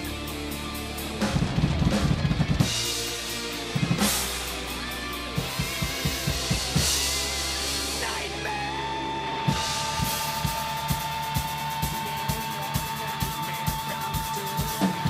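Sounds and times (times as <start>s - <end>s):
drum kit played hard: 0.0s - 15.0s
rock backing track with guitar: 0.0s - 15.0s
crashing cymbals: 2.6s - 15.0s.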